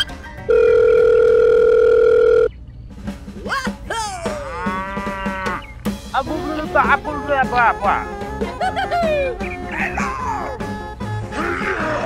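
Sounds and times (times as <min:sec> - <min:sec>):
telephone dial tone: 0:00.5 - 0:02.5
cow mooing: 0:04.3 - 0:05.7.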